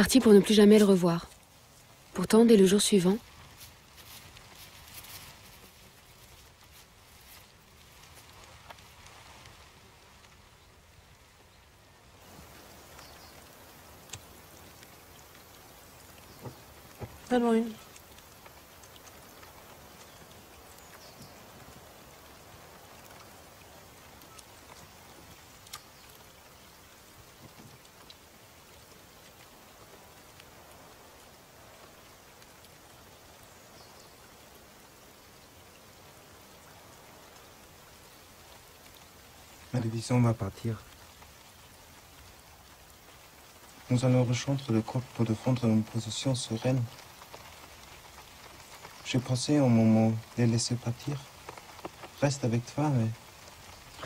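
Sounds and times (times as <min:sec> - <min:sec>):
faint steady hiss: 0:00.0 - 0:54.0
soft ticks: 0:14.0 - 0:17.2, 0:17.8 - 0:29.5, 0:51.1 - 0:52.2.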